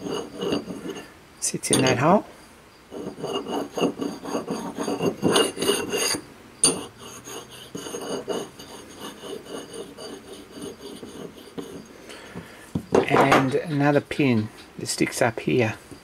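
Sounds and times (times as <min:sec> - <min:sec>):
steel plate scraping on steel: 0:00.0 - 0:02.2, 0:02.9 - 0:11.9
metal clink: 0:01.7 - 0:02.0.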